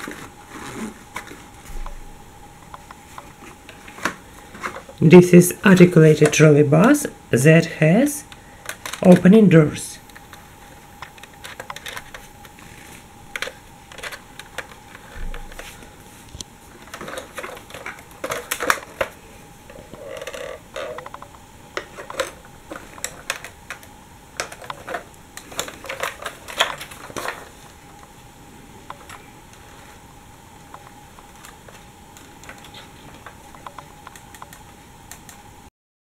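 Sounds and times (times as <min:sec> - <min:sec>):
plastic toy clicking and rattling: 0:08.6 - 0:09.4, 0:11.0 - 0:15.0, 0:16.8 - 0:19.2, 0:20.0 - 0:27.5.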